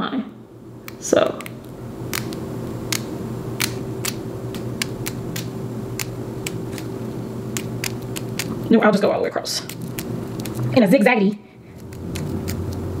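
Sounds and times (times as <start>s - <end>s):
low hum: 0.0s - 8.7s
scissors snipping: 0.8s - 6.9s, 7.5s - 8.6s, 9.6s - 10.7s, 11.7s - 12.9s.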